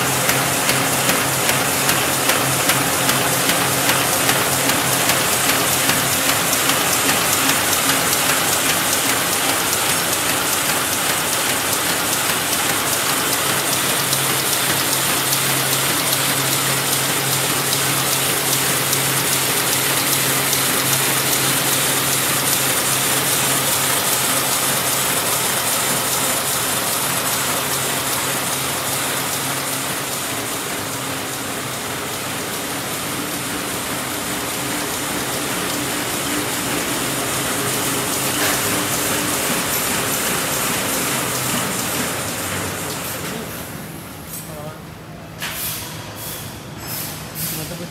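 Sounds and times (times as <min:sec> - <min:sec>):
machine clattering: 0:00.0 - 0:43.8.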